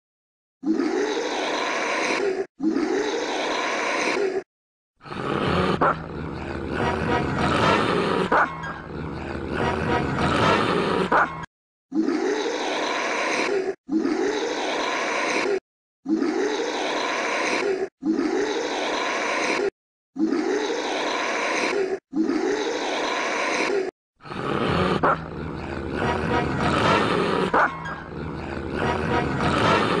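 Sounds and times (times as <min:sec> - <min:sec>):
dog-like animal sounds: 0:05.7 - 0:09.7, 0:24.9 - 0:30.0
dog barks: 0:27.5 - 0:27.8
music: 0:28.8 - 0:29.6.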